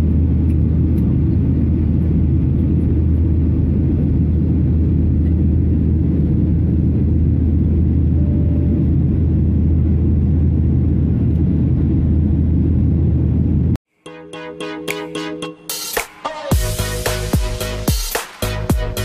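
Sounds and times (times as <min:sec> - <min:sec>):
airplane cabin engine rumble: 0:00.0 - 0:13.8.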